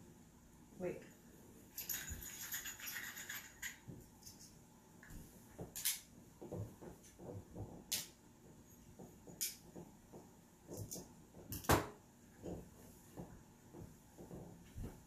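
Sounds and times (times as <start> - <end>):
soft barefoot steps: 12.3 - 15.0.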